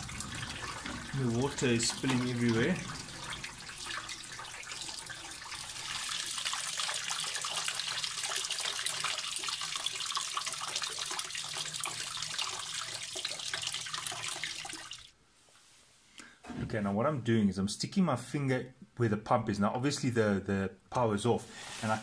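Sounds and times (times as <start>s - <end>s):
water pouring into plastic basin: 0.0s - 15.1s.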